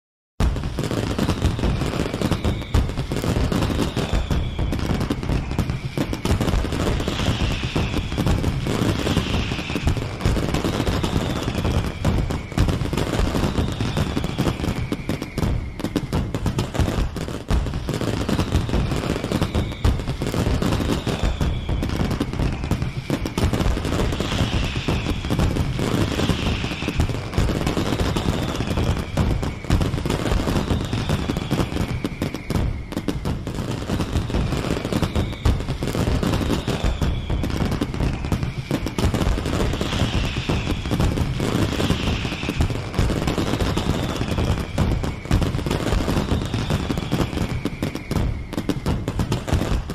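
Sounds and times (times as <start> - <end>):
falling firework whistles: 0.4 - 49.9
fireworks cracks and bangs: 0.4 - 49.9.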